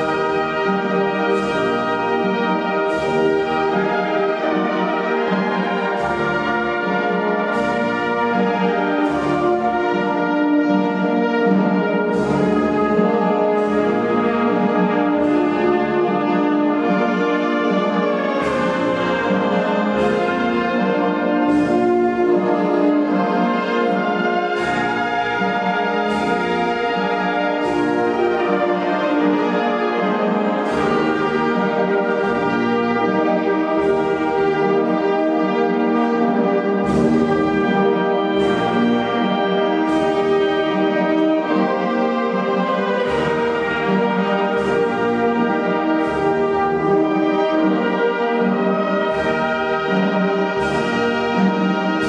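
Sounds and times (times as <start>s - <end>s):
percussion stroke: 0.0s - 52.0s
wind band playing: 0.0s - 52.0s.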